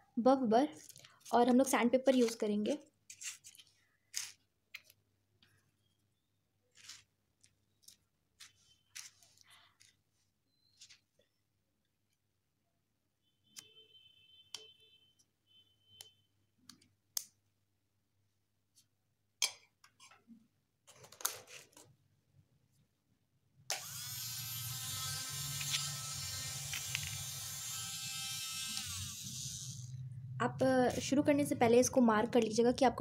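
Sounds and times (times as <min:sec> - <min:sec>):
micromotor high whine: 0:23.7 - 0:30.1.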